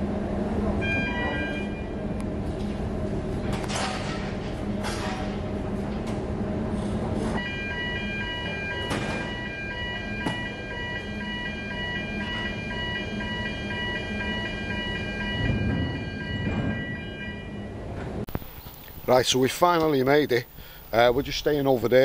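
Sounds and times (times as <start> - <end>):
low machinery hum: 0.0 - 22.0
electronic alarm beeping: 0.8 - 2.0, 7.4 - 17.9.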